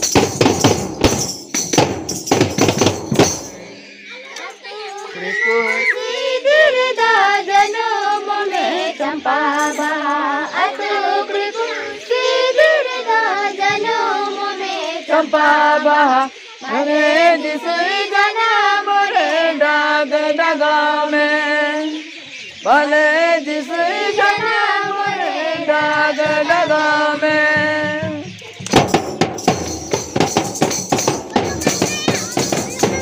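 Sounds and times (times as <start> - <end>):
group singing in unison: 5.8 - 22.0, 22.6 - 28.4.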